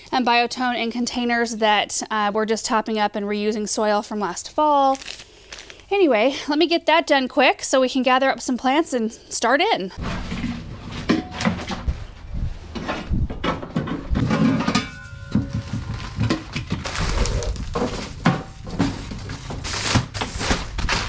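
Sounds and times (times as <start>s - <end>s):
plastic bags rustling: 4.8s - 5.9s, 15.1s - 21.0s
plastic trays and pots knocking: 13.3s - 19.6s.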